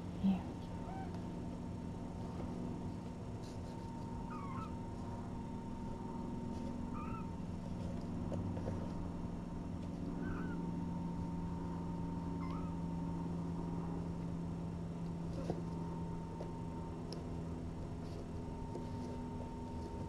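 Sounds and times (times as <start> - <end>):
low room hum: 0.0 - 20.0
kitten mewing: 0.8 - 1.2, 4.3 - 4.8, 10.2 - 10.6, 12.4 - 12.8.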